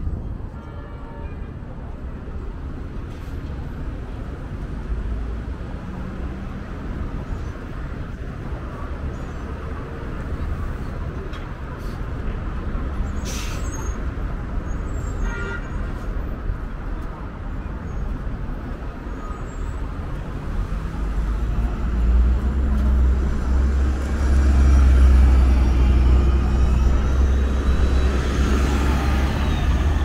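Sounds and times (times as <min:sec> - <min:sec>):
bus engine and road rumble: 0:00.0 - 0:30.0
air brake hiss: 0:13.2 - 0:14.0.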